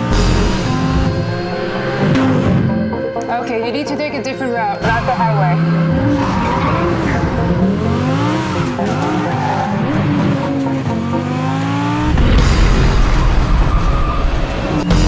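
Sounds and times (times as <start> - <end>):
car engine revving: 0.0 - 3.0, 4.7 - 15.0.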